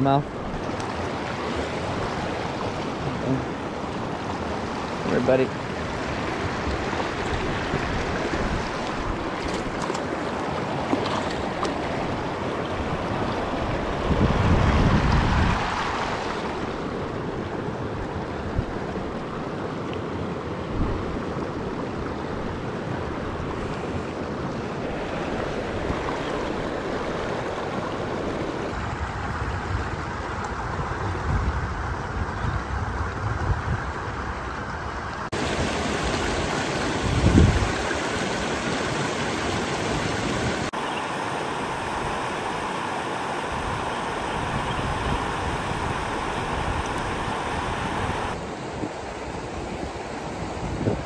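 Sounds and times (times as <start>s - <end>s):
stream running over rocks: 0.0s - 51.0s
wind on microphone: 0.2s - 17.2s, 28.3s - 40.7s, 43.5s - 51.0s.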